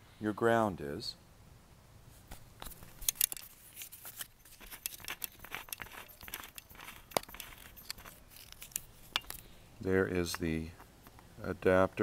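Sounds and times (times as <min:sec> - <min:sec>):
handling clicks scrapes and rustles: 0:02.1 - 0:11.4.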